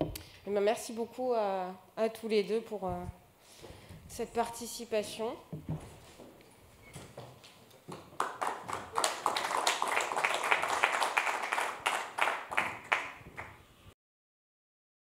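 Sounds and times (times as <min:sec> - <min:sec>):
people clapping: 0:07.4 - 0:13.6.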